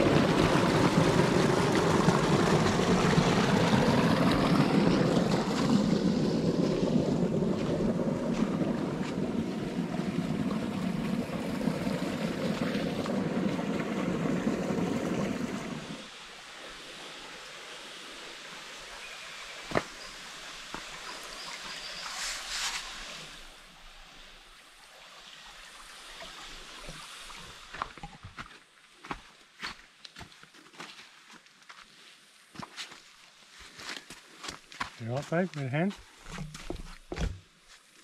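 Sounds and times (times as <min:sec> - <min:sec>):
creek water splashing: 0:00.0 - 0:28.8.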